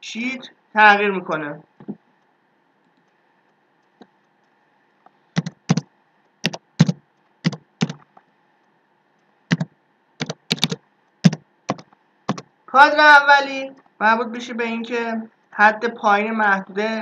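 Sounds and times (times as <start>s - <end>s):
keyboard keystrokes: 5.4s - 8.1s, 9.5s - 12.5s.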